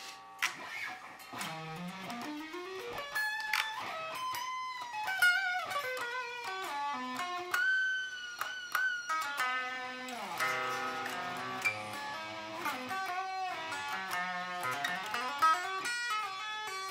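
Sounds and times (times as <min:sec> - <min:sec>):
electric guitar solo: 0:00.3 - 0:16.9.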